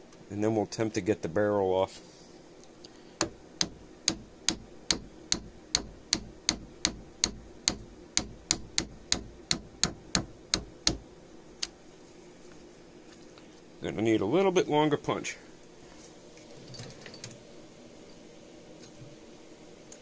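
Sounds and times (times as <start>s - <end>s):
hammer striking metal punch: 3.2s - 11.0s.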